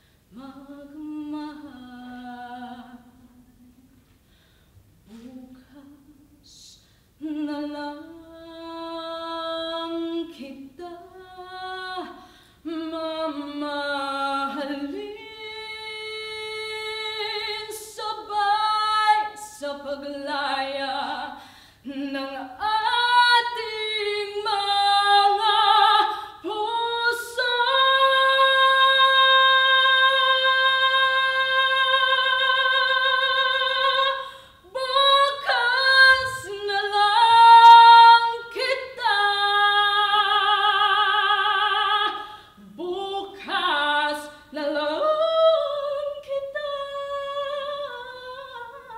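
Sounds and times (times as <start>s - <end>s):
woman singing unaccompanied: 0.3s - 3.9s, 5.1s - 48.9s.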